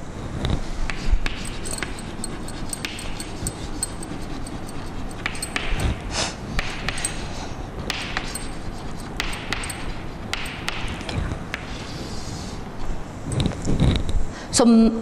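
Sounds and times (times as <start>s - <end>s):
chalk scratching on chalkboard: 0.9s - 5.8s
chalk tapping on board: 0.9s - 5.8s, 6.6s - 7.3s, 7.9s - 11.8s.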